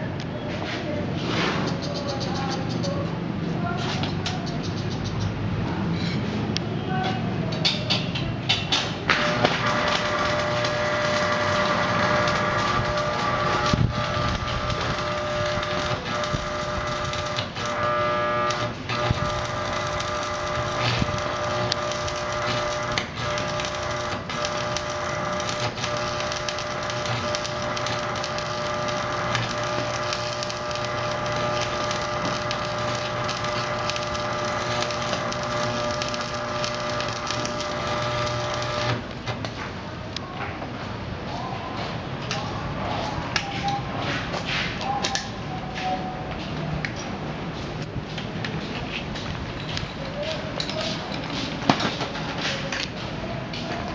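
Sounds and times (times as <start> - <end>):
steady multi-tone hum: 0.0 - 53.9
welding arc crackling: 8.9 - 39.6.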